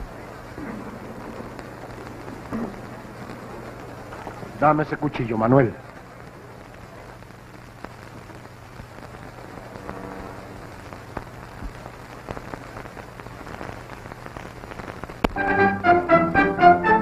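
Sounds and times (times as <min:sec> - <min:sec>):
film soundtrack hiss and crackle: 0:00.0 - 0:17.0
orchestral music: 0:15.4 - 0:17.0.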